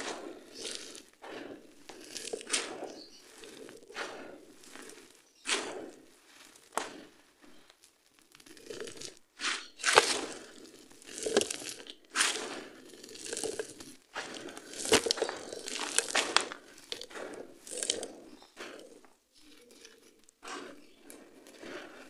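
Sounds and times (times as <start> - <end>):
gritty crunching by hand: 0.0 - 22.0
gravel poured onto pile: 4.5 - 18.2.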